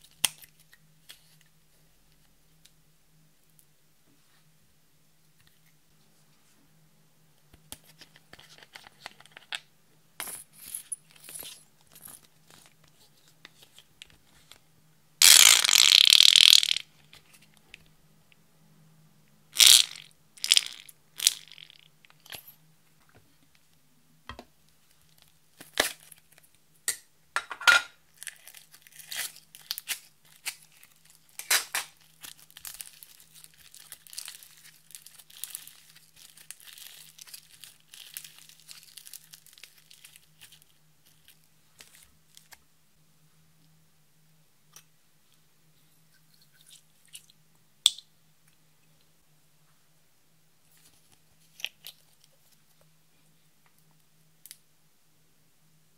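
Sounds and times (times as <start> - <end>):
bead slime crackling: 15.2 - 16.8, 19.6 - 21.9.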